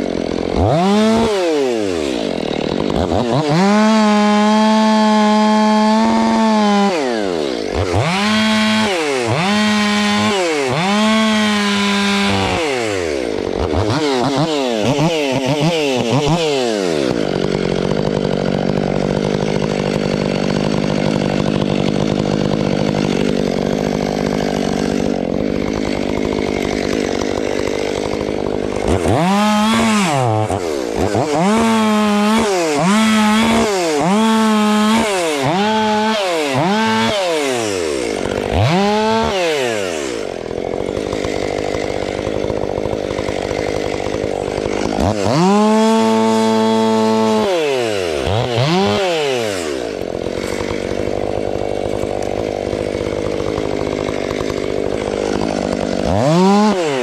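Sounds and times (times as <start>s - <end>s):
chainsaw revving: 0.0s - 57.0s.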